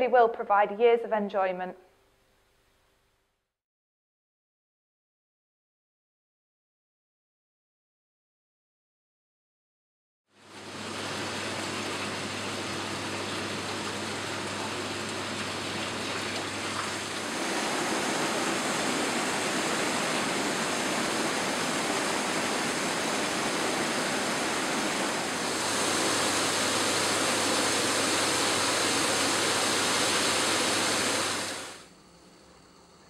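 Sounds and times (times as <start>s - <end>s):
hot tub water churning: 10.4s - 31.9s.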